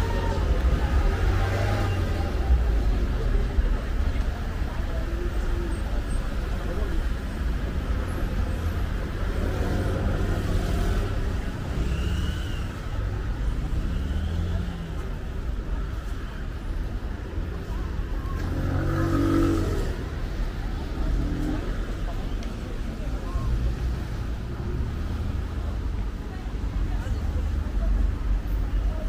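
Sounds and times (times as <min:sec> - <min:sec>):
cars passing: 0:00.0 - 0:29.0
low traffic rumble: 0:00.0 - 0:29.0.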